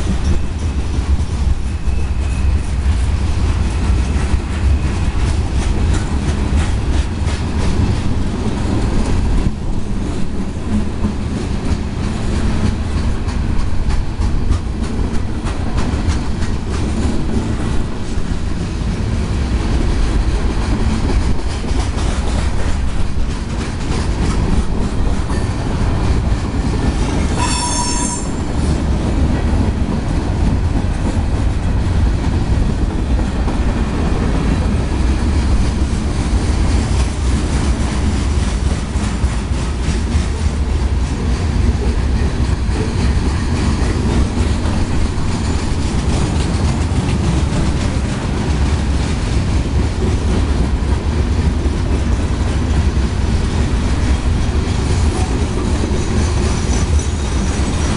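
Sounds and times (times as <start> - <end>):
metallic wheel squeal: 27.4 - 28.5
freight cars rumbling: 28.2 - 57.9.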